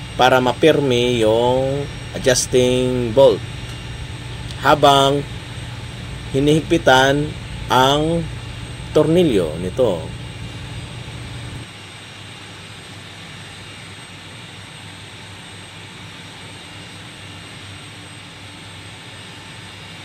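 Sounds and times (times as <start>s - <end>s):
low hum: 0.0s - 14.1s
machinery drone: 0.0s - 20.0s.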